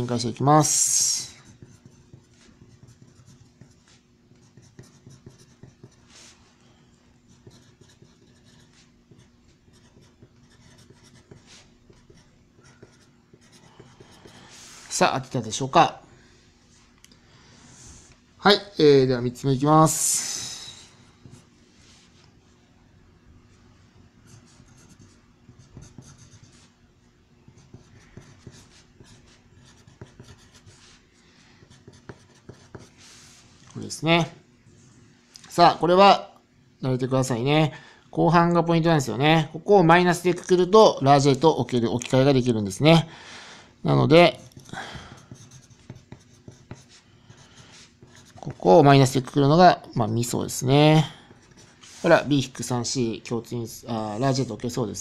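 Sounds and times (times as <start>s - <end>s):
low steady hum: 0.0s - 55.0s
pencil scratching on paper: 0.7s - 6.4s, 7.2s - 14.9s, 21.0s - 21.5s, 24.2s - 26.8s, 27.5s - 33.5s, 44.3s - 48.9s, 51.2s - 52.5s.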